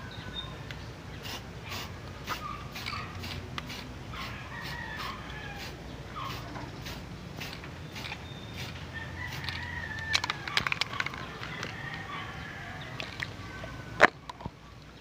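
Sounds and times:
spray can ball clacking: 0:01.3 - 0:04.3, 0:06.3 - 0:11.8.

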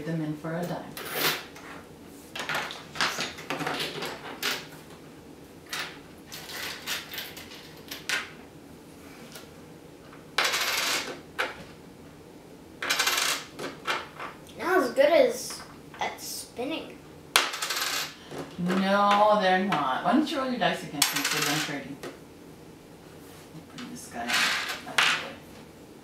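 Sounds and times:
coins rattling scrapes: 0:01.0 - 0:01.5, 0:06.3 - 0:08.0, 0:10.4 - 0:11.2, 0:12.8 - 0:13.5, 0:17.5 - 0:18.2.

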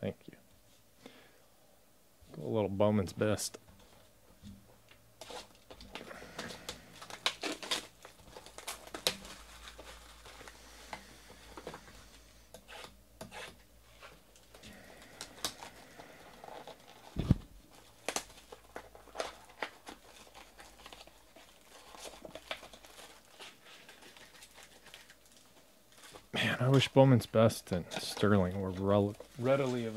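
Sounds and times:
plastic wrap crinkling: 0:05.2 - 0:11.9, 0:14.3 - 0:26.3, 0:28.0 - 0:29.9.

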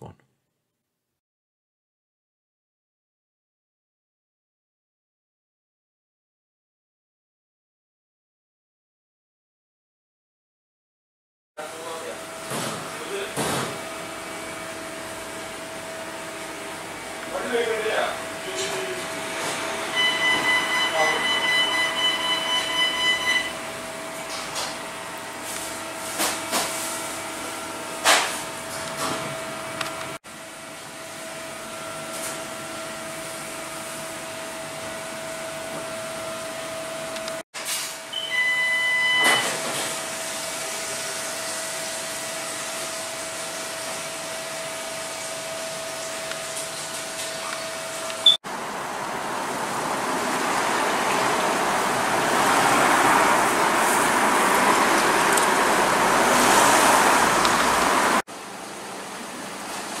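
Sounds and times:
electrical hum: 0:11.6 - 0:37.4
short high beeps: 0:19.9 - 0:23.6, 0:38.1 - 0:39.4.

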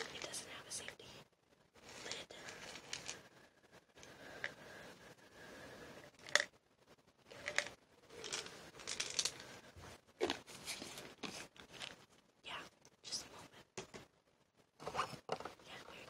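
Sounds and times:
crisp crackling and scraping: 0:01.8 - 0:03.3, 0:07.3 - 0:09.6, 0:10.2 - 0:12.3.

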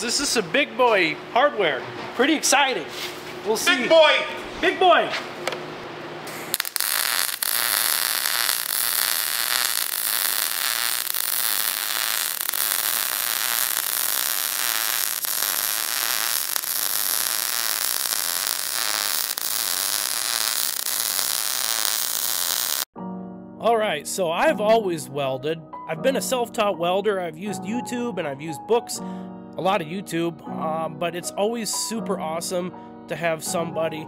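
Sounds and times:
welding arc crackling and hissing: 0:06.3 - 0:22.9.

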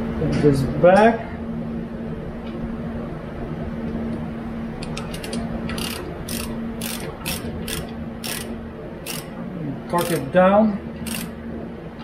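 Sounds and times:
ratchet wrench clicking: 0:04.9 - 0:09.3, 0:10.0 - 0:10.3, 0:11.0 - 0:11.3.

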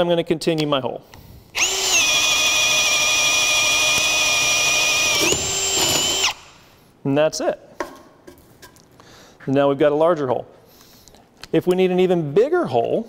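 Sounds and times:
cordless drill boring wood: 0:01.6 - 0:06.6.

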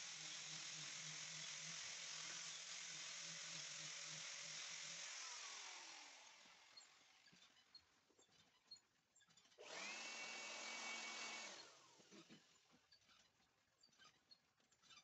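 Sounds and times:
electric sander on wood: 0:00.0 - 0:06.7, 0:09.6 - 0:11.8.

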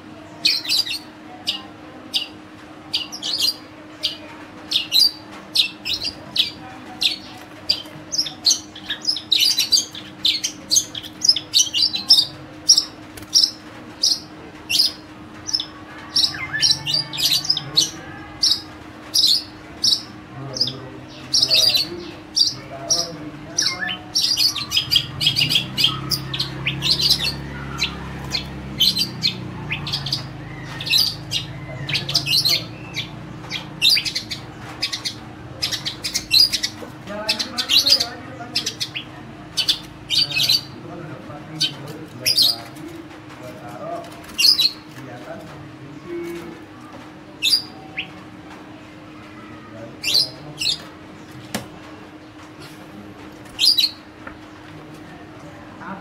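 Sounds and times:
bird chirping song: 0:00.4 - 0:40.8, 0:47.4 - 0:48.2, 0:53.6 - 0:54.7.

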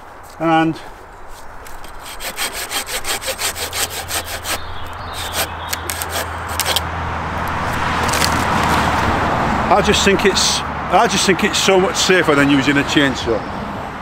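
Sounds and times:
hand saw cutting branch: 0:01.6 - 0:06.8.

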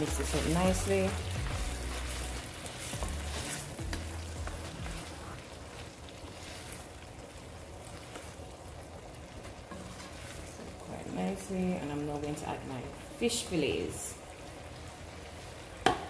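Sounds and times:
wooden spoon stirring knocks: 0:00.0 - 0:05.1
vegetables sizzling and bubbling: 0:00.0 - 0:16.0.

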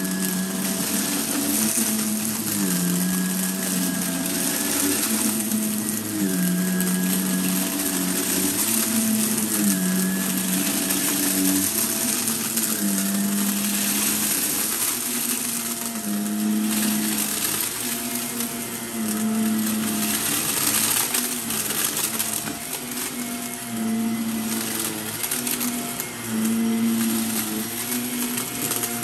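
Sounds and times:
vacuum cleaner motor hum: 0:00.0 - 0:29.0.

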